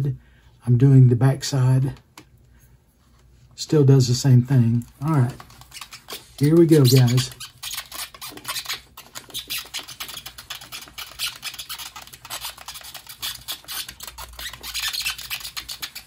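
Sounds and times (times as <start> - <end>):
burnisher rubbing leather edge: 5.7 - 16.0.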